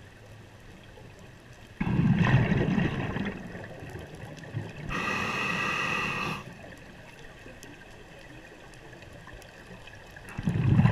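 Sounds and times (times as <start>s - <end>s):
low rumbling water noise: 0.0s - 10.9s
diver breathing through regulator: 4.9s - 6.6s.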